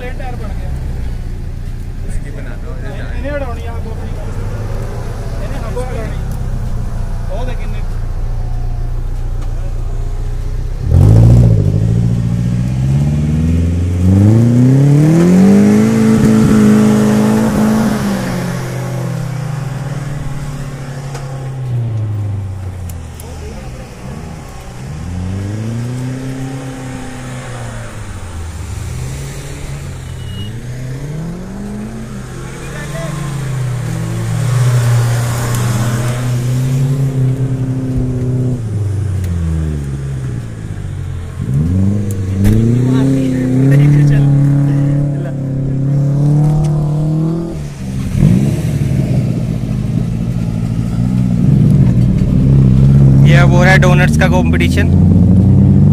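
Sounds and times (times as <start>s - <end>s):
diesel engine revving: 0.0s - 55.9s
engine revving hard: 10.8s - 19.1s, 41.4s - 50.2s.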